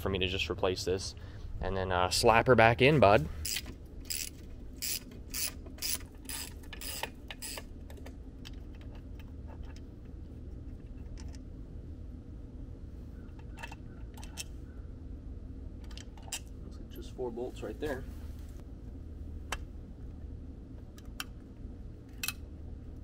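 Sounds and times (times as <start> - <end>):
ratchet wrench clicking: 3.4 - 7.6.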